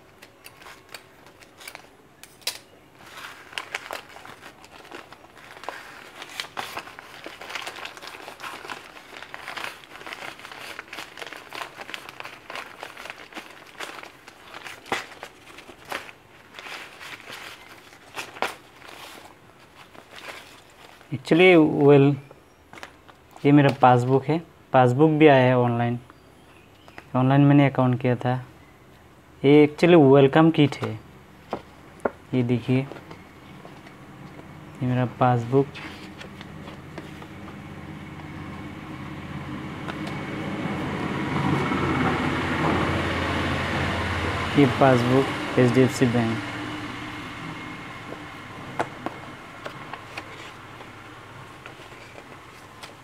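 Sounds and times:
card folder rustling: 0.0 - 21.3, 22.7 - 23.8, 35.5 - 40.8, 48.0 - 53.0
plastic mailer crinkling: 0.0 - 24.3, 30.8 - 43.5, 47.7 - 53.0
low machine hum: 30.9 - 52.8.

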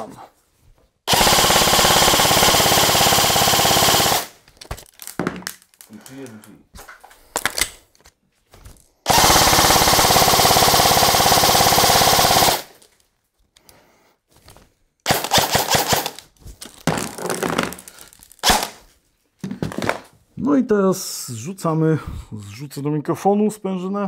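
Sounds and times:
airsoft rifle automatic fire: 1.1 - 4.4, 9.1 - 12.8, 15.1 - 16.2, 18.4 - 18.8.

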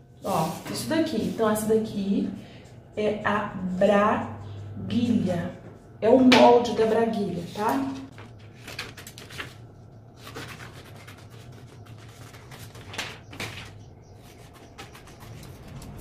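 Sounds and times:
low steady hum: 0.0 - 16.0
paper rustling: 7.4 - 16.0.

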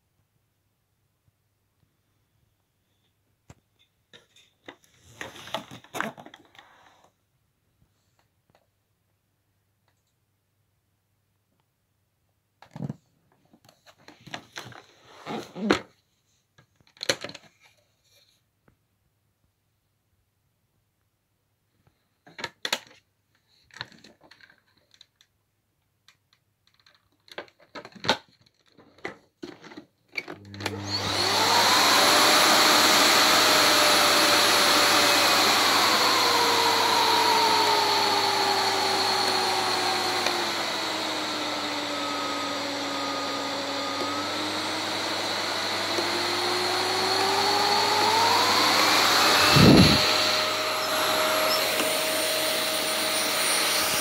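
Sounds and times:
vacuum motor whine: 30.3 - 54.0.

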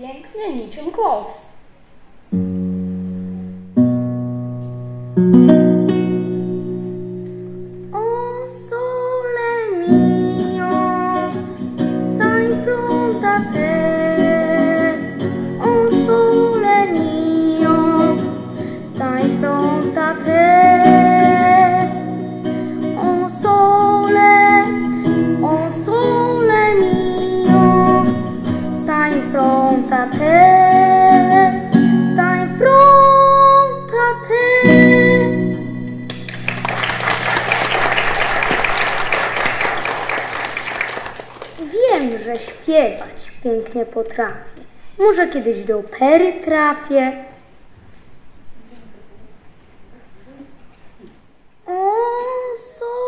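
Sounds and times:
boy singing into microphone: 7.9 - 35.8, 51.6 - 53.0
audience applauding: 36.1 - 42.6.

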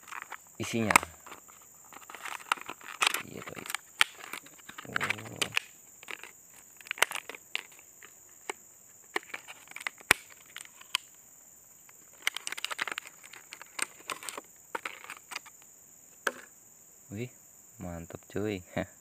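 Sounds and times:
plastic packaging crinkling: 0.0 - 11.1, 11.9 - 15.6
high insect buzz: 0.0 - 19.0.

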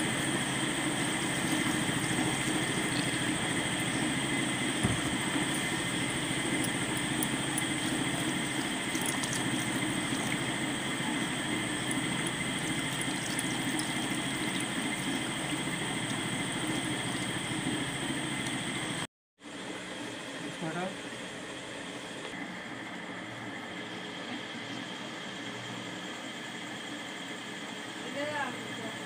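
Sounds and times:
water pouring into a pan: 0.0 - 17.6
constant mechanical hum: 0.0 - 29.0.

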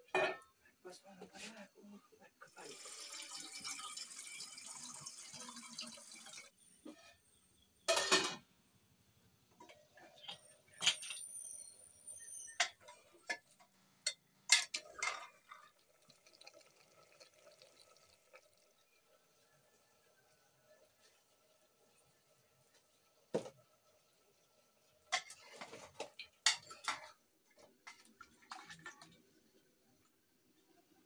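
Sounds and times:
metal pots and utensils clattering: 0.0 - 0.6, 7.8 - 8.5, 9.5 - 15.7, 25.0 - 29.3
water pouring into a metal pot: 2.4 - 6.6, 14.6 - 27.1.

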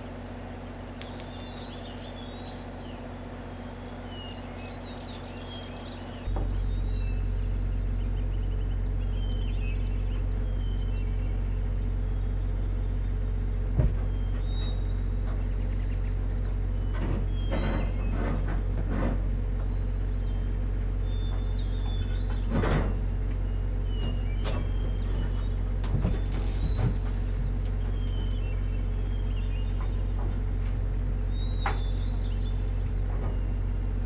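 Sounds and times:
machinery humming: 0.0 - 34.0
small birds chirping: 0.0 - 34.0
hooves on wooden floor: 24.4 - 28.9.

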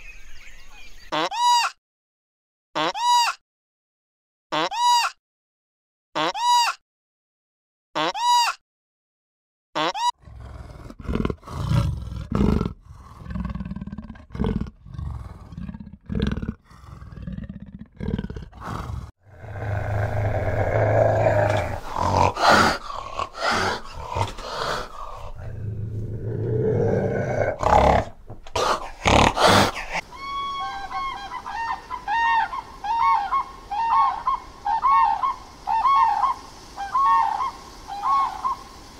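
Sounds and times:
large animal deep calls: 10.2 - 30.9.

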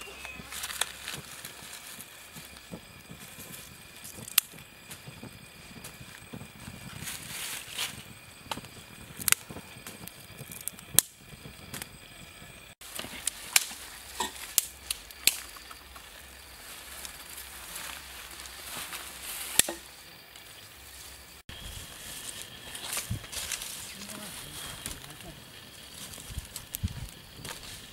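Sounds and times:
sticks snapping: 4.2 - 4.6, 12.9 - 15.8, 19.5 - 19.9.

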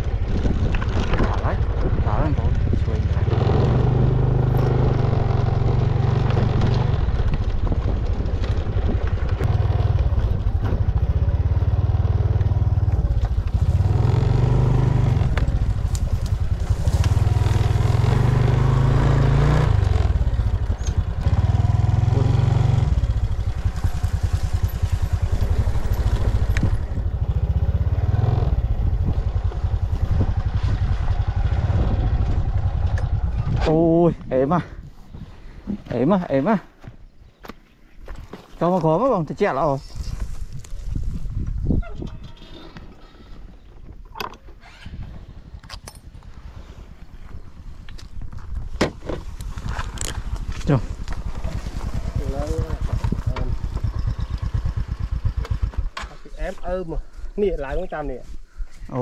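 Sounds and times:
small motorcycle engine: 0.0 - 33.7, 44.6 - 56.6.

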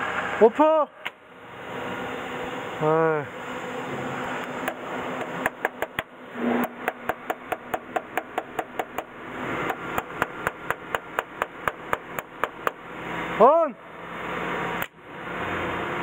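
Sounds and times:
tool knocking on metal contactor: 4.6 - 9.1, 9.7 - 12.8.

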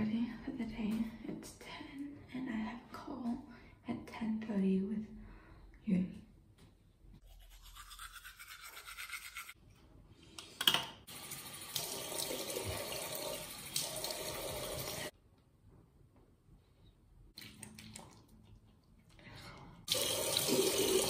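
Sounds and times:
tap running water into basin: 11.1 - 15.1, 19.9 - 21.0.

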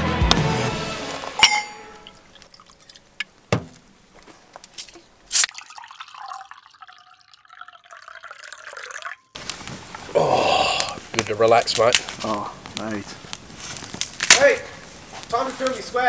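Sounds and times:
metallic clink in steel cup: 1.4 - 2.2
soft drink pouring into cup: 2.0 - 3.3, 5.4 - 9.4.

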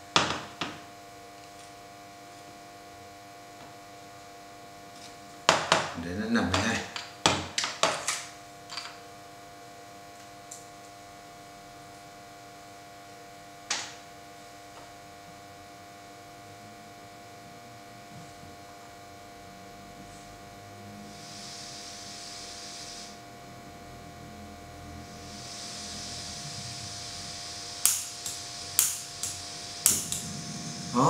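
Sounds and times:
electrical hum: 0.0 - 31.0
gas hissing from stove valve: 21.0 - 23.3, 25.0 - 31.0.

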